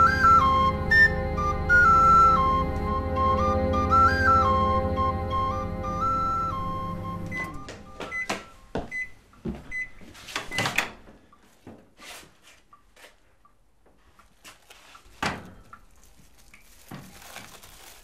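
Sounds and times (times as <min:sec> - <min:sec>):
microwave short high beeps: 0:05.4 - 0:09.2.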